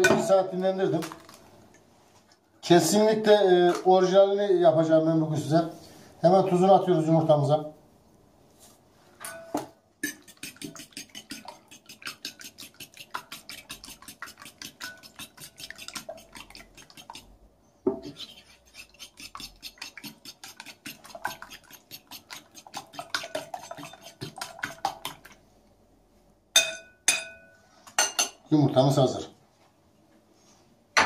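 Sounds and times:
fork beating eggs in bowl: 10.0 - 17.4, 18.0 - 25.4.

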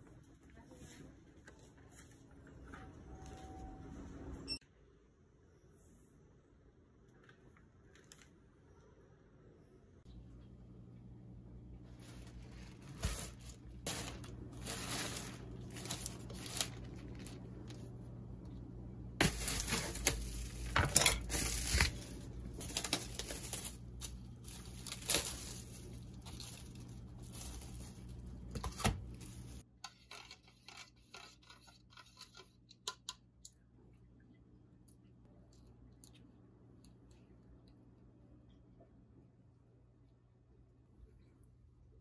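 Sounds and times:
packaging rustling and crinkling: 11.9 - 18.0, 19.2 - 29.6.

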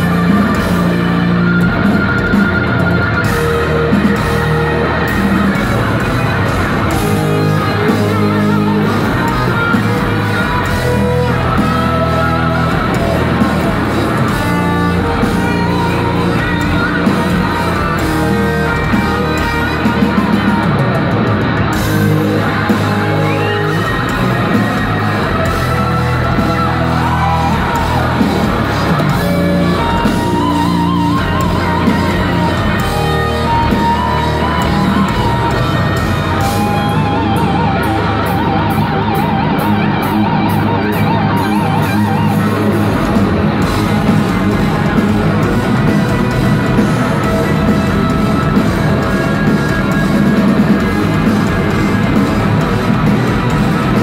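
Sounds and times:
rock band playing live: 0.0 - 54.0
wavering lead guitar: 0.0 - 54.0.

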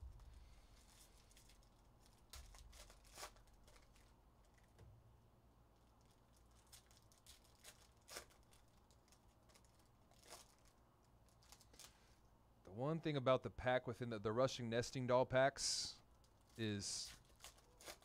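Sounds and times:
foil wrapper crinkling and tearing: 0.1 - 4.8, 5.8 - 12.1, 16.2 - 18.0.

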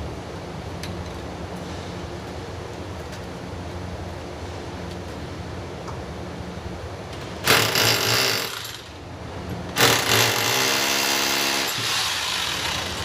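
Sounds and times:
electric drill boring into concrete: 7.5 - 8.9, 9.8 - 13.0.

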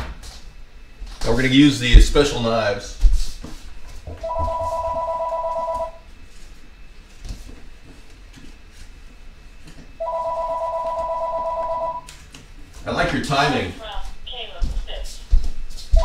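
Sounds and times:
telephone two-tone ring: 4.3 - 6.0, 10.0 - 12.1.

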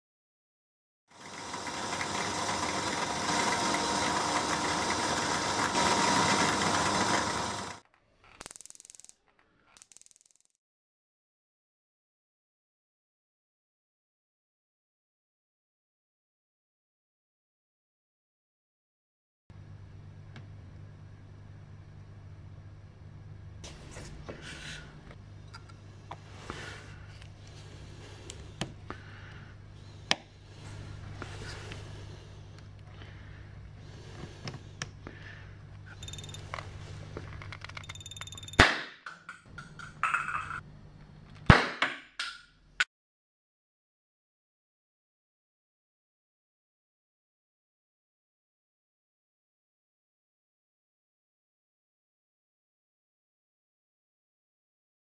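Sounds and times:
drill press whining: 1.1 - 7.8, 34.0 - 38.6
low steady hum: 19.6 - 38.2.

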